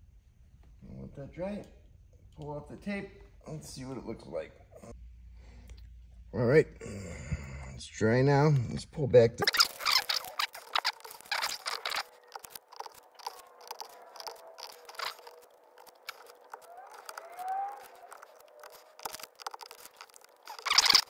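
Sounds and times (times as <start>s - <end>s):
tape peeling and ripping: 9.4s - 21.0s.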